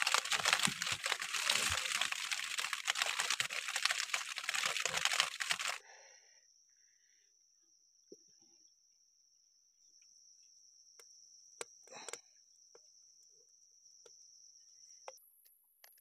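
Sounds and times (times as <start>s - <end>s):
handling rustle: 0.0s - 5.8s
crickets chirring: 0.0s - 8.0s.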